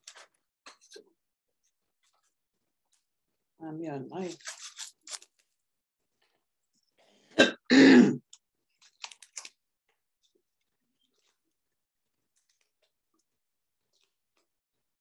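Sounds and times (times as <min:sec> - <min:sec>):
woman coughing: 0:07.4 - 0:08.2.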